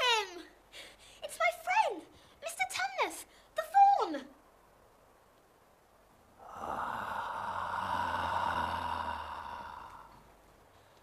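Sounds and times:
lion's long slow breath: 6.4 - 11.0.

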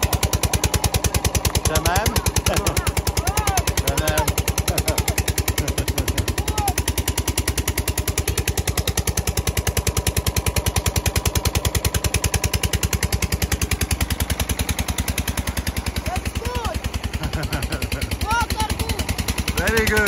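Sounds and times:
water pump engine running: 0.0 - 20.0.

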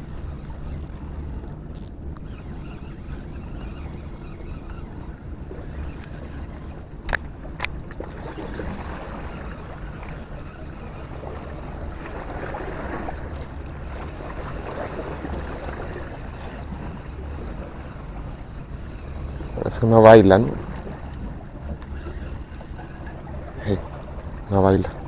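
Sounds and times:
fishing reel whirring: 0.0 - 24.9.

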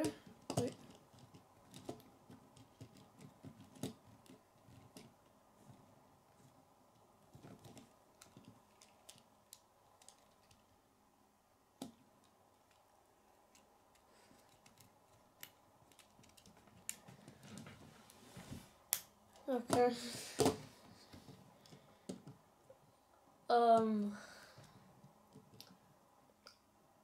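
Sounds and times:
plastic toy pieces clicking: 7.6 - 10.6.

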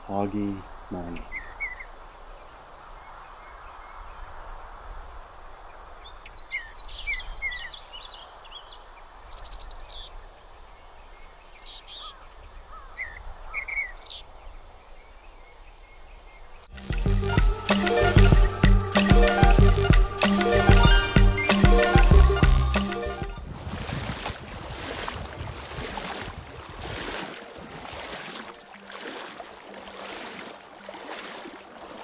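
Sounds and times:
songbird song phrases: 0.0 - 4.4, 5.7 - 17.2, 20.2 - 23.3
steady background hiss: 0.0 - 16.6.

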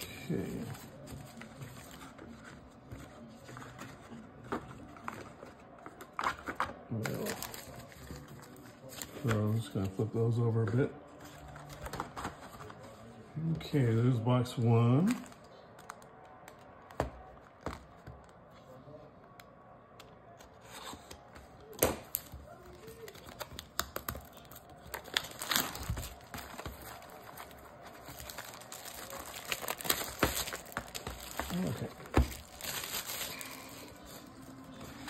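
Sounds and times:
plastic wrapping crinkling and tearing: 0.0 - 9.8, 15.0 - 16.9, 21.7 - 35.0.

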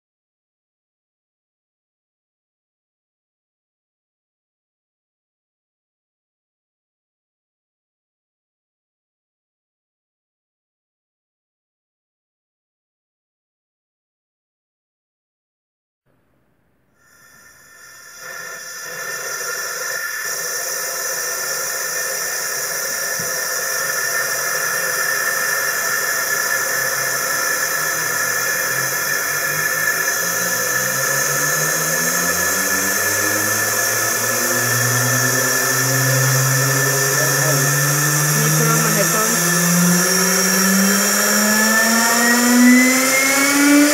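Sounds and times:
turbine air rush with high whine: 17.0 - 43.9
low hum rising in pitch: 27.9 - 43.9.

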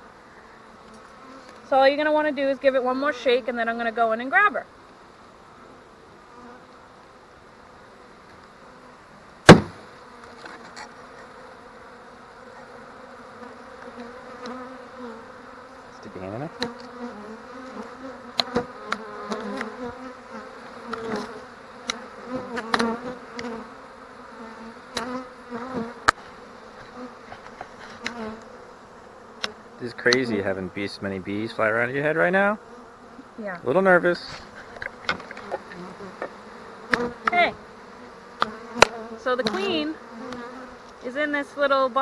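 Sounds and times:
bees buzzing: 0.0 - 42.0
knock on wooden box: 9.5 - 9.8.

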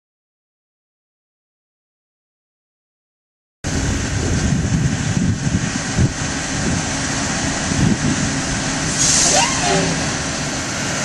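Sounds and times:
wind buffeting microphone: 3.7 - 11.0.

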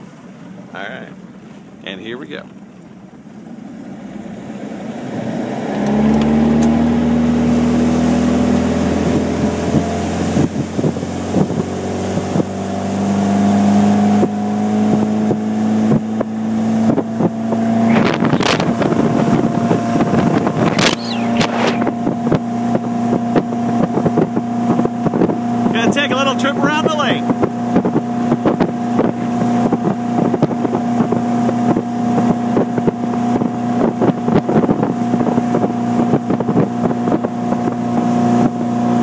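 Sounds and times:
boat engine droning: 0.0 - 39.0
wind buffeting microphone: 4.5 - 39.0
sharp bursts of noise: 20.7 - 21.9.

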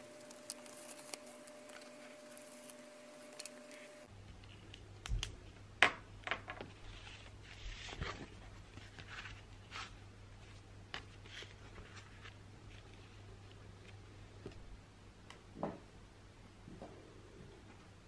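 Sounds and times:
paper rustling: 0.0 - 4.1, 6.8 - 10.0.

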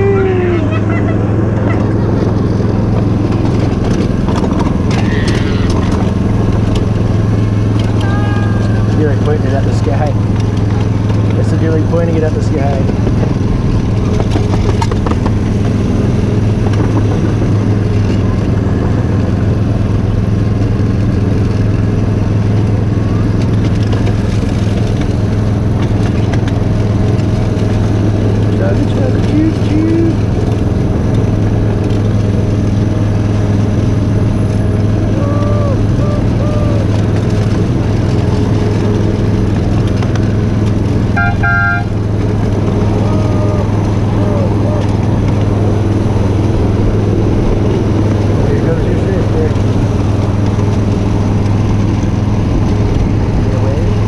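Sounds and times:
miniature train drone: 4.5 - 20.0, 35.1 - 54.0
train horn toots: 41.2 - 42.0.

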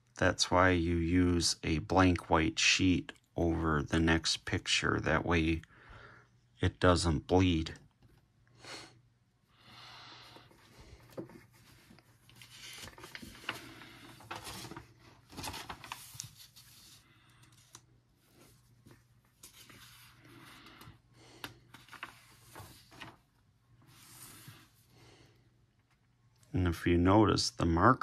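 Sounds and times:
paper pages rustling: 10.6 - 24.8.

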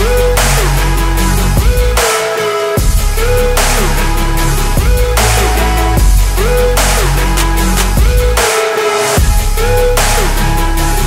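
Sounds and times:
electronic music with heavy bass: 0.0 - 11.0.

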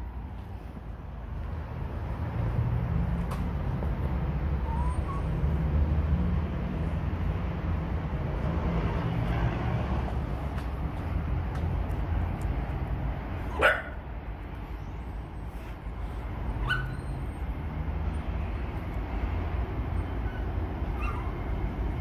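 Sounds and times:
dog barking: 13.5 - 14.0, 16.6 - 17.0.

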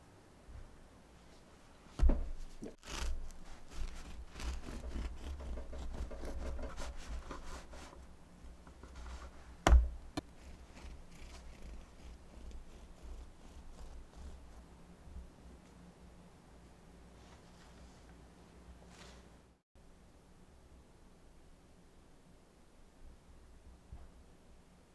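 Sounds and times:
bread knife sawing through bread: 2.8 - 8.1, 10.2 - 14.7.

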